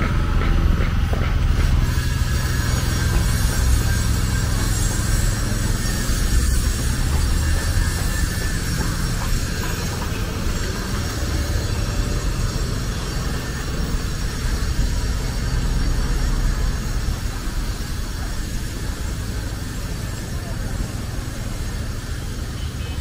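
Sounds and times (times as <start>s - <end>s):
traffic rumble of passing vehicles: 0.0s - 23.0s.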